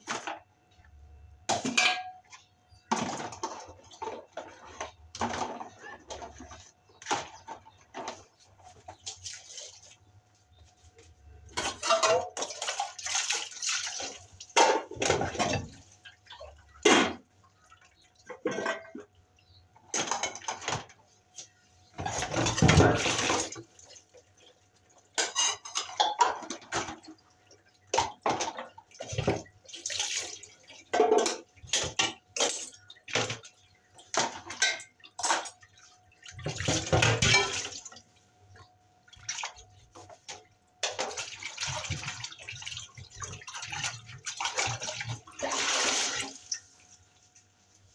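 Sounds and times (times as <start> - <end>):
water splashing and running: 11.6 - 16.6, 26.2 - 38.2, 39.0 - 47.2.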